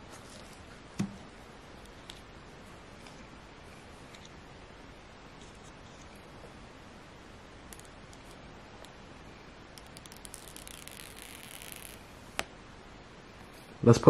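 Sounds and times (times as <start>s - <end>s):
protective film peeling off screen: 9.7s - 12.5s.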